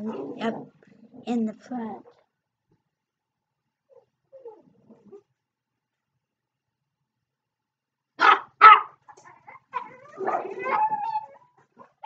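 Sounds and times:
dog barking: 8.2s - 9.1s, 9.7s - 11.2s.

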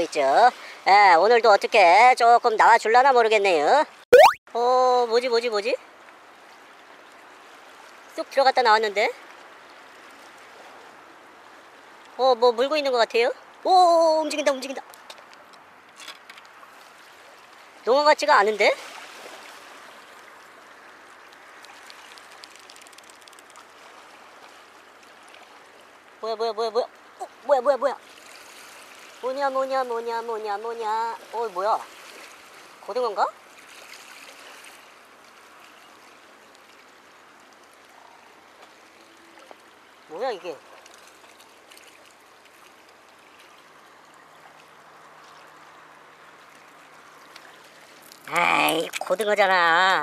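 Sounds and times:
sea water washing: 16.7s - 26.1s, 27.4s - 50.0s
faint small ticks: 21.2s - 23.8s
faint clicks: 21.3s - 23.7s
seawater washing against rocks: 46.7s - 50.0s.

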